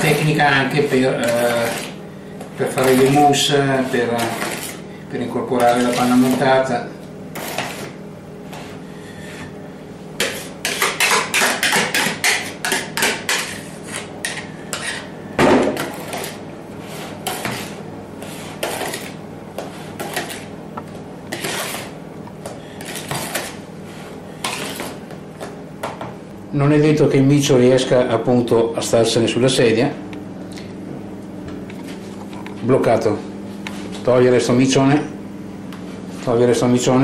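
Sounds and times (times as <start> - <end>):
utensil scraping mixing bowl: 0.0 - 8.8, 10.2 - 25.2.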